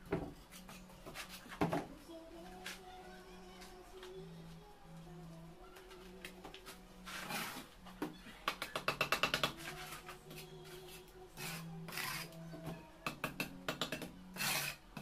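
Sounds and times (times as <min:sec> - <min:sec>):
faint background music: 0:00.0 - 0:15.0
trowel scraping mortar: 0:11.4 - 0:12.4, 0:14.4 - 0:14.8.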